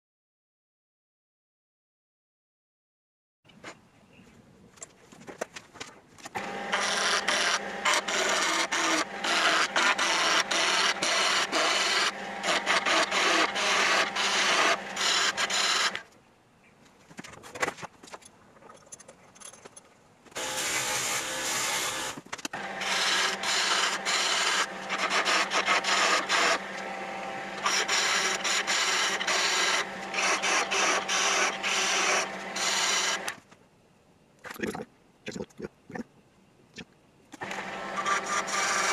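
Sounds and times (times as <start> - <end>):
lathe motor humming: 6.4 - 16.0, 20.4 - 33.4, 37.4 - 38.9
lathe tool scraping wood: 6.4 - 16.0, 20.4 - 33.4, 37.4 - 38.9.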